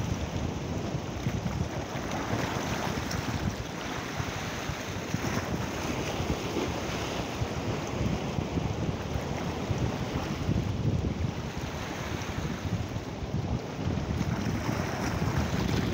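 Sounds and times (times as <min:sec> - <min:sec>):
wind buffeting microphone: 0:00.0 - 0:15.9
small waves breaking on rocky shore: 0:00.1 - 0:10.5.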